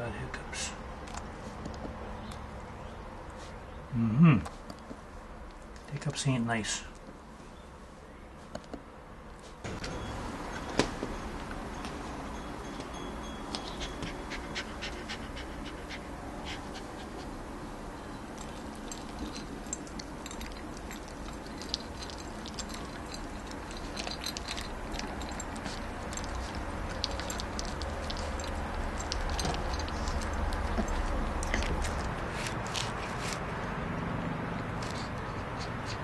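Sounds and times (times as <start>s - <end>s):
low steady hum: 2.2s - 36.0s
puppy crunching dry kibble: 18.0s - 36.0s
kibble clicking against bowl: 18.4s - 32.2s.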